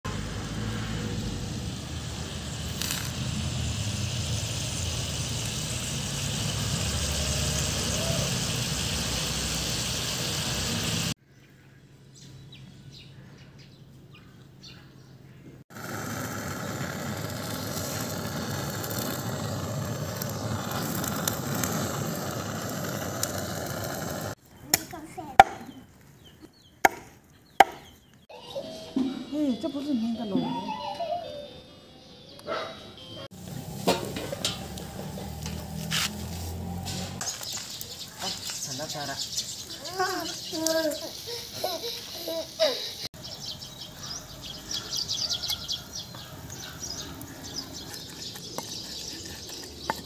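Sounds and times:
wood fire rushing: 0.2 - 11.2, 15.7 - 24.4, 33.4 - 41.7
gas torch hissing: 0.4 - 11.2, 15.7 - 24.4, 33.3 - 42.9.

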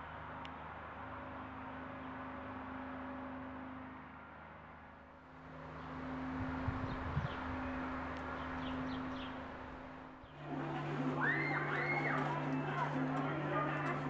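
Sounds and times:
steady low hum: 0.1 - 11.1
bird chirps: 6.8 - 9.5.

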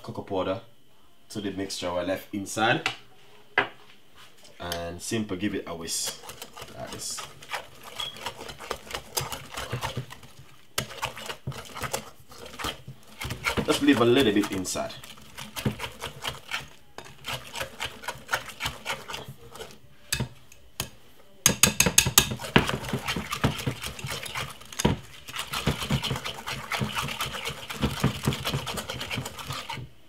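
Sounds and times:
whisk clicking against glass bowl: 6.0 - 29.9.

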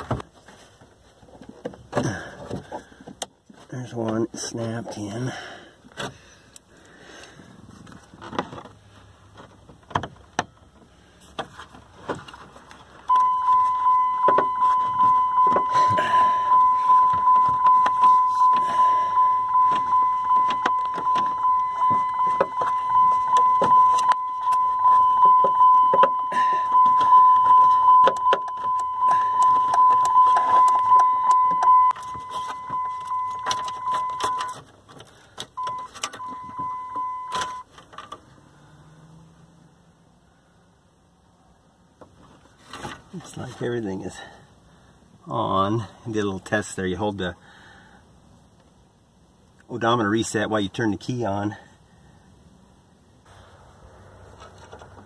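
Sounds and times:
dashboard warning chime beep: 13.1 - 34.6, 35.6 - 37.7
hands clicking on dashboard: 13.1 - 34.6.

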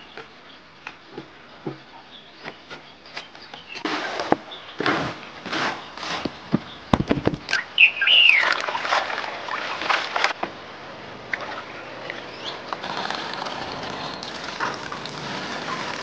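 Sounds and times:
bird chirp: 0.0 - 4.9, 5.7 - 8.6, 11.7 - 12.6.

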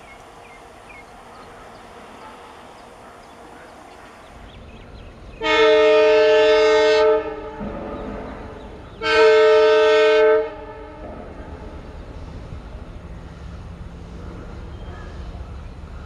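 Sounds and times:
train rumbling: 0.0 - 16.0
locomotive air horn blasts: 5.4 - 7.7, 9.0 - 11.1.

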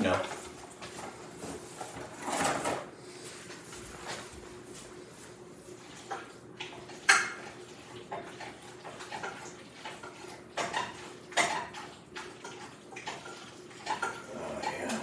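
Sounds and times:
pots and pans clanking: 1.8 - 2.9, 5.9 - 15.0.

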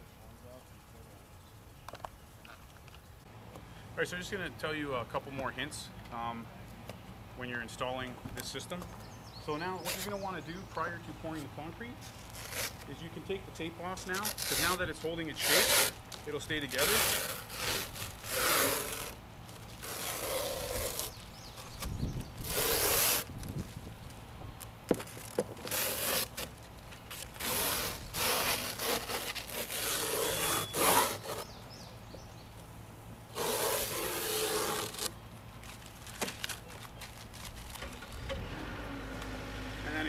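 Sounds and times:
tape being peeled off: 9.8 - 10.3, 11.4 - 13.1, 13.9 - 31.6, 33.3 - 38.3.

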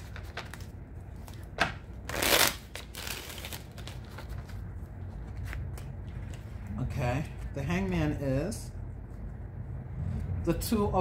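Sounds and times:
cards being shuffled: 0.0 - 7.9.

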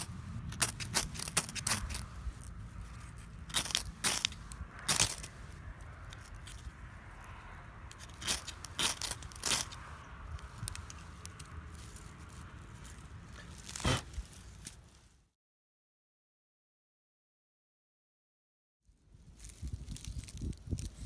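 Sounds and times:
firesteel scraped with striker: 0.0 - 6.7.

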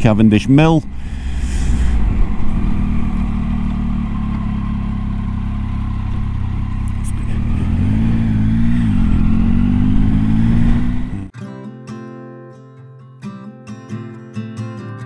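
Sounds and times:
motorcycle engine running: 0.0 - 11.3.

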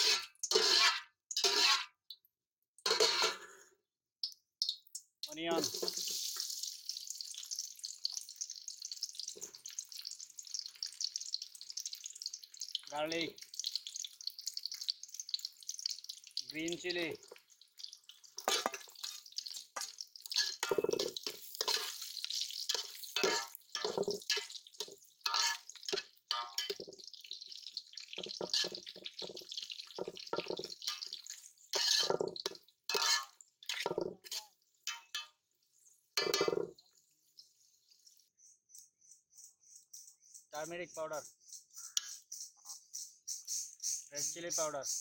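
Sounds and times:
metal spatula stirring and scraping: 0.0 - 2.0, 2.8 - 3.7, 5.5 - 38.2
liquid pouring into pot: 4.3 - 35.4.

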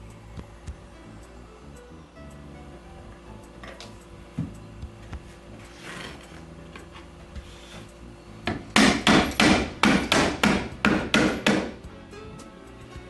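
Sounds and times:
rubber mallet tapping wood: 8.4 - 12.0.

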